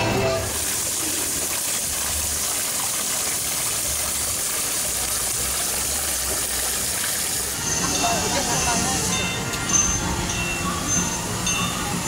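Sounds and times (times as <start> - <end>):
fountain water splashing: 0.0 - 12.0.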